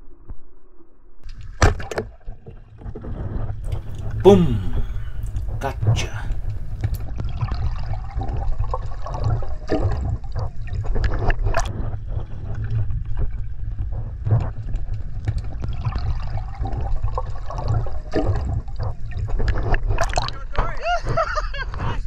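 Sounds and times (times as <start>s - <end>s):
underwater rumble of moving water: 0.0s - 22.0s.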